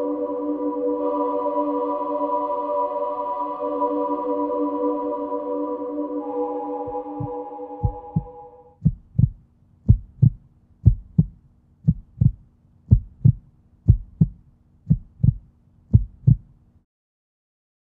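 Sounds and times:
faint steady hum: 0.0s - 16.8s
heartbeat thumps: 6.9s - 16.5s.

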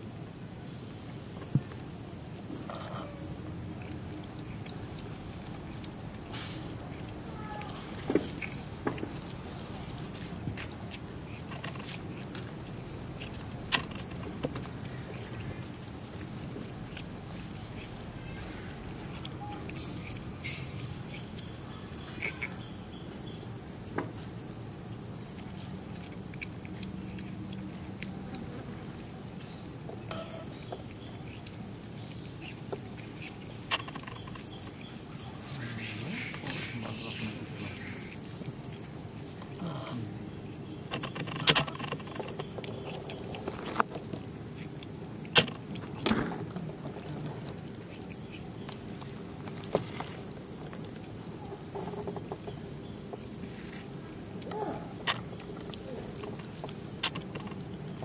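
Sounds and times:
high-pitched insect drone: 11.2s - 24.1s, 29.4s - 48.8s.

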